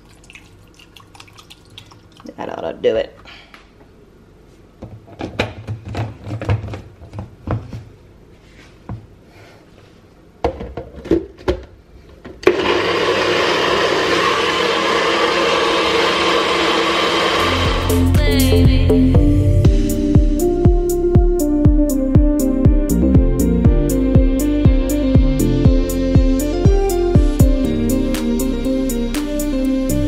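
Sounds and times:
blender motor running: 12.5s - 18.2s.

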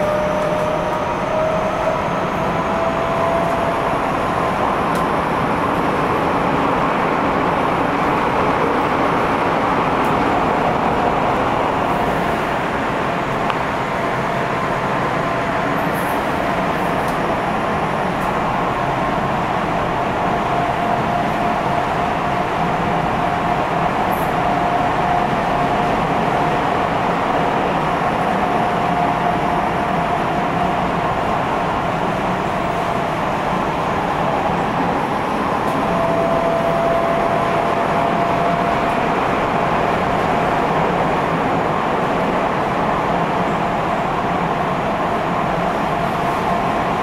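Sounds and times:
subway train rumble and rail noise: 0.0s - 47.0s.

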